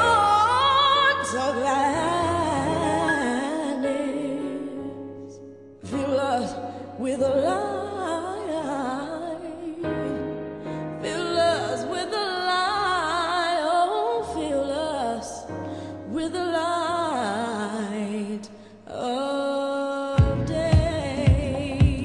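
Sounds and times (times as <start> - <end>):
held low chords: 20.2 - 22.0
woman singing gospel runs: 20.2 - 22.0.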